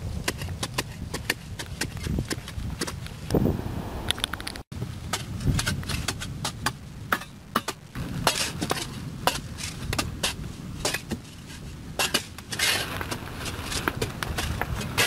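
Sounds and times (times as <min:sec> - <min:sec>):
shovel scraping soil: 0:00.0 - 0:03.0, 0:05.1 - 0:15.0
digging bar striking hard earth: 0:05.1 - 0:11.3, 0:12.0 - 0:15.0.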